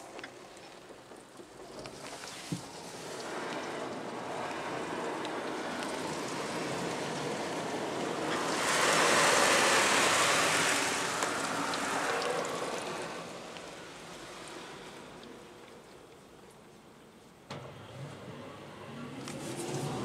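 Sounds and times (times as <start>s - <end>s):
car wash brushes swishing: 1.6s - 15.3s, 18.7s - 20.0s.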